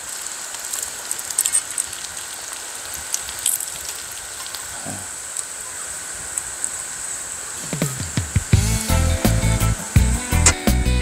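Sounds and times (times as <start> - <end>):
small crackling pops: 0.0 - 4.7
food sizzling in oil: 0.0 - 5.4.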